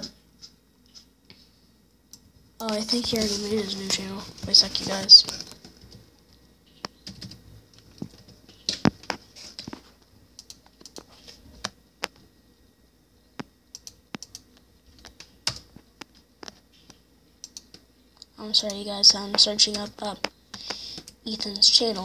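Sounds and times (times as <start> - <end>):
typing on computer keyboard: 6.8 - 9.0, 17.4 - 17.8.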